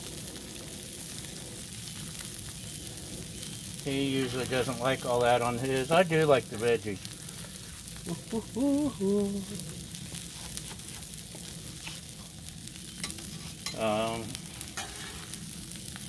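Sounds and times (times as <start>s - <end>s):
food sizzling on griddle: 0.0s - 16.0s
person humming: 8.0s - 9.7s.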